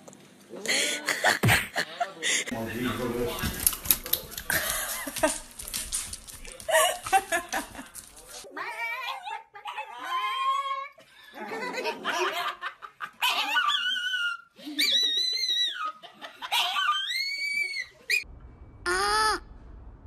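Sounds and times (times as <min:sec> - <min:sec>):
person laughing: 0:00.6 - 0:03.1, 0:04.4 - 0:05.6, 0:06.6 - 0:08.1.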